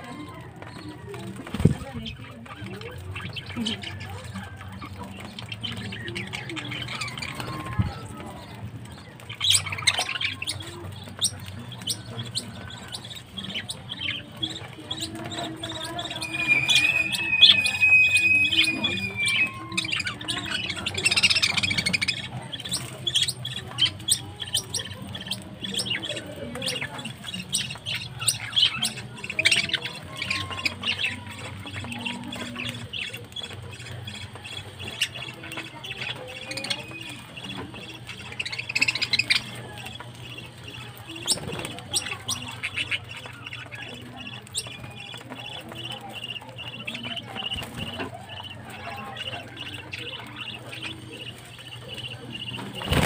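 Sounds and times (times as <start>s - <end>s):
budgerigars chattering: 0.0s - 53.0s
held bird whistle: 15.7s - 22.0s.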